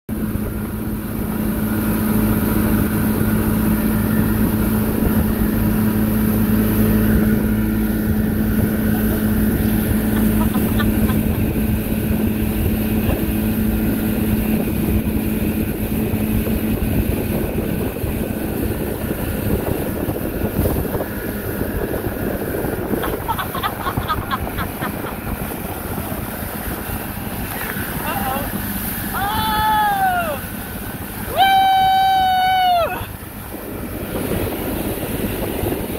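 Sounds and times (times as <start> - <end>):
churning wake water: 0.1 - 35.9
outboard motor droning: 0.1 - 35.9
wind rushing: 1.6 - 29.7.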